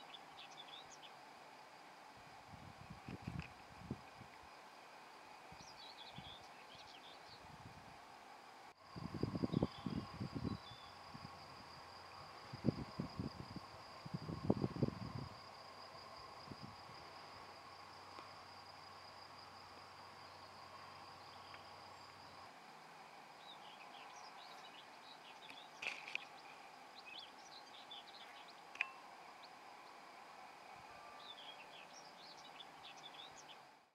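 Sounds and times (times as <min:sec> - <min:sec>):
small birds chirping: 0:00.0 - 0:01.2, 0:05.6 - 0:07.5, 0:23.4 - 0:29.6, 0:31.2 - 0:33.7
high-pitched insect trill: 0:00.0 - 0:07.8, 0:08.8 - 0:33.8.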